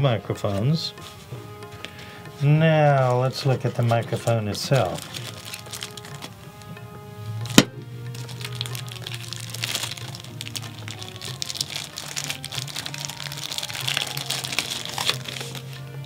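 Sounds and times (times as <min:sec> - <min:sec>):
background music: 0:00.0 - 0:16.0
plastic sleeve crinkling: 0:02.9 - 0:06.8, 0:07.4 - 0:16.0.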